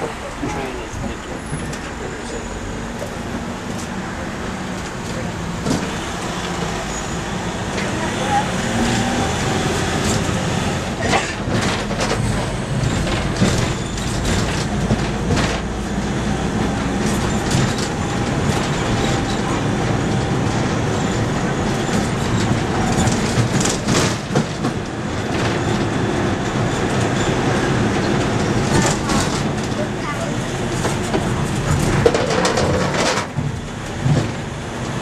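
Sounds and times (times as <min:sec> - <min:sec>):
road train motor and wheels rumbling: 0:00.0 - 0:35.0
carriage rattles and knocks: 0:30.8 - 0:34.5.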